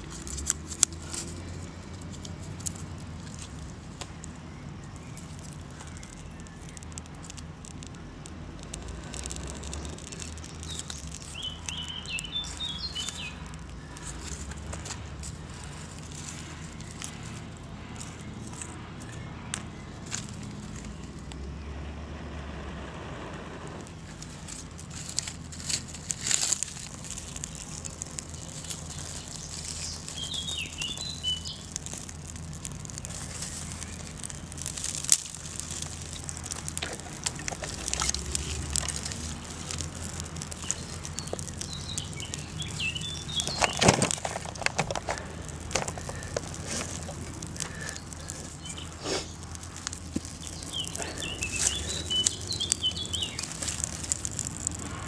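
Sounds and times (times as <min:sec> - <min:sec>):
twigs crackling in fire: 0:00.0 - 0:55.0
small bird chirping: 0:04.0 - 0:08.1, 0:08.7 - 0:17.4, 0:26.7 - 0:54.5.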